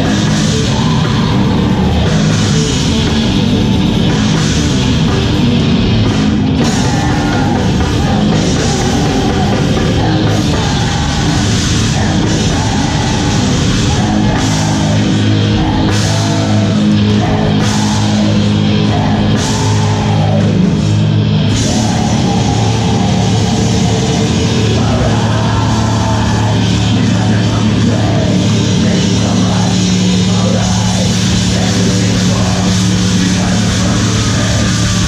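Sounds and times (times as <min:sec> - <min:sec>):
death metal band playing live: 0:00.0 - 0:35.0
distorted guitars: 0:00.0 - 0:35.0
drums: 0:00.0 - 0:35.0
metal vocals: 0:00.0 - 0:35.0.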